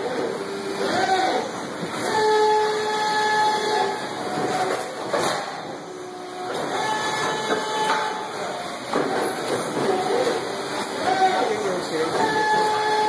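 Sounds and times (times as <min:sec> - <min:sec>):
machines running with whining tones: 0:00.0 - 0:13.0.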